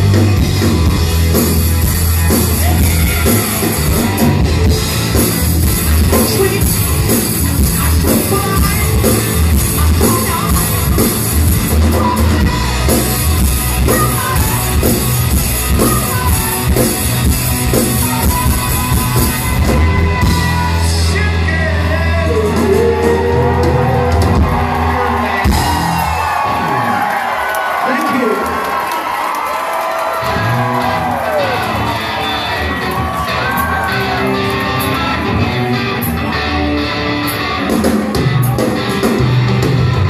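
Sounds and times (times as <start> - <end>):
drum kit beat: 0.0 - 26.5, 30.2 - 40.0
live rock band playing: 0.0 - 40.0
high wailing lead vocal: 2.5 - 4.2, 18.0 - 27.2.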